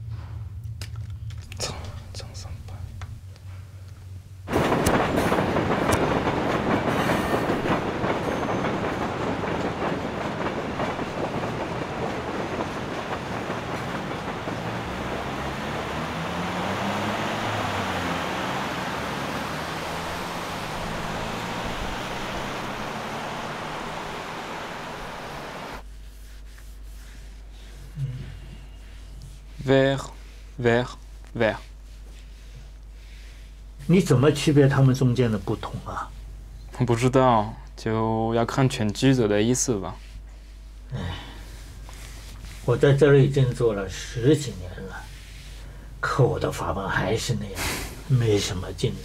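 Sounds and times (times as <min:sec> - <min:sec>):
train passing: 0:02.5 - 0:25.8, 0:41.4 - 0:49.0.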